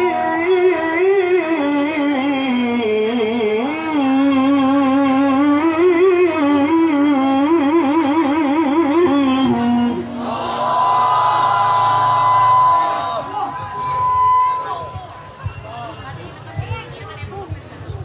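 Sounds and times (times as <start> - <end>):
person reciting melodically: 0.0 - 10.7.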